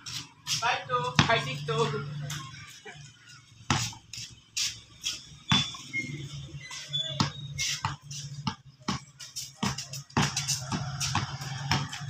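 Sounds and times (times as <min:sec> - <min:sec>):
basketball bouncing on concrete: 0:01.1 - 0:02.0, 0:03.5 - 0:04.1, 0:05.5 - 0:05.9, 0:06.7 - 0:12.0.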